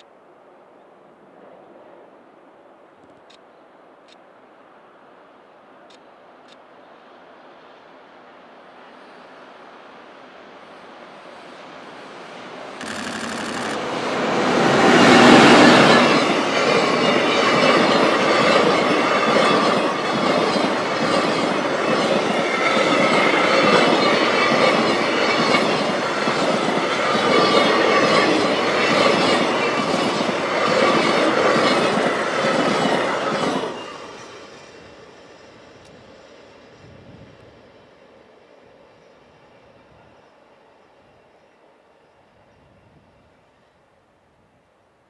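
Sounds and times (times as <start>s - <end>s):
electric locomotive passing: 7.0s - 44.5s
wheel squeal: 12.8s - 14.0s
clickety-clack of train wheels: 12.8s - 37.6s.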